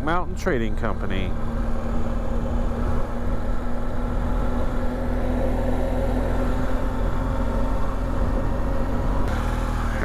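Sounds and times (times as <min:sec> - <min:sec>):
motorcycle engine running: 0:00.0 - 0:10.0.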